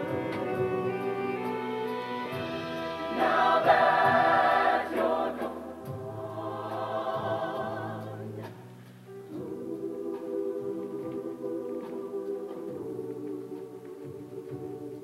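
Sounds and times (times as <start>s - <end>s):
choir singing held chords: 0.0s - 15.0s.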